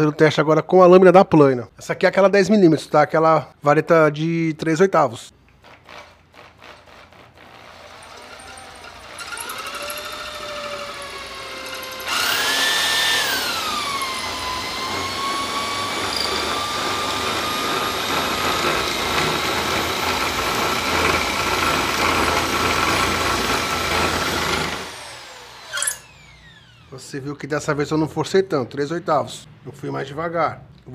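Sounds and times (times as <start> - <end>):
blade shaving wooden rod: 5.6 - 26.1
power drill motor whine: 7.5 - 27.0.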